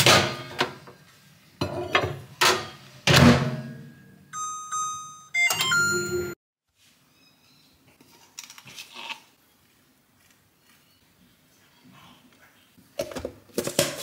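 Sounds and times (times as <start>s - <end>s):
microwave keypad beeping: 4.3s - 6.4s.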